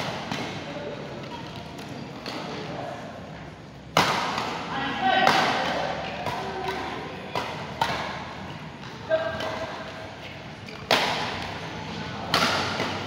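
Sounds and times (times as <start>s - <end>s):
racket hitting shuttlecock: 0.0s - 0.6s, 3.9s - 10.0s, 10.7s - 11.6s, 12.2s - 13.0s.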